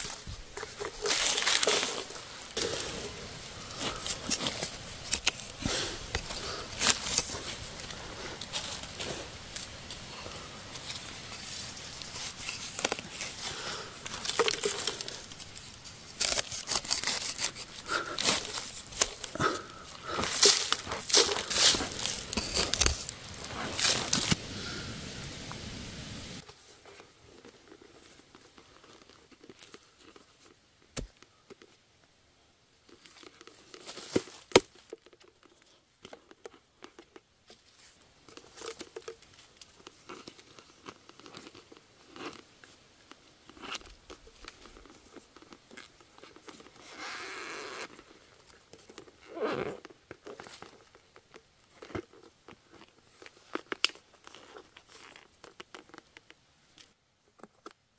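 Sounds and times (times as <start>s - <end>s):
plastic bottle crinkling: 0.0s - 24.4s, 32.8s - 57.8s.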